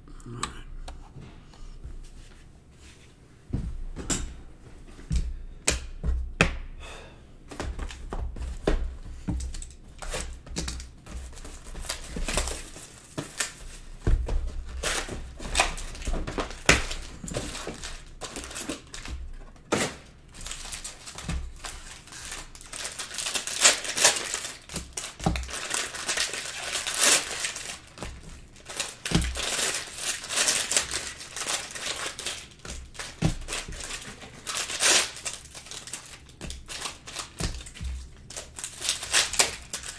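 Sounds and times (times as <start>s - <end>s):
plastic wrappers crinkling and tearing: 9.4s - 39.9s.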